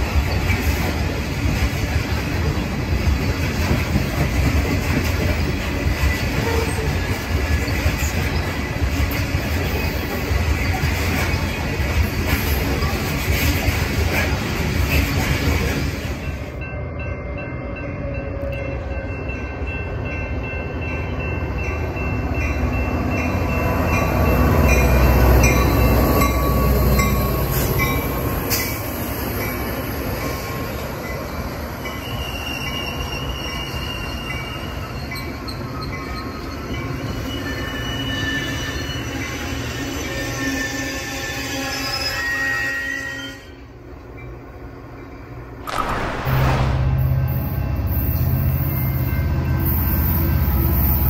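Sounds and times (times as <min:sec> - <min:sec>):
train cars rolling on rails: 0:00.0 - 0:51.0
diesel locomotive engine rumble: 0:43.6 - 0:51.0.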